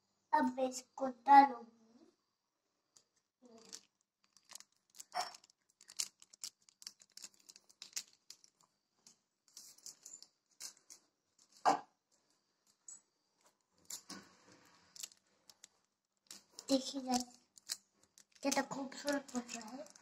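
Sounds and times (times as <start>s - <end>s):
foil sachet crinkling and tearing: 3.5s - 8.6s, 16.3s - 20.0s.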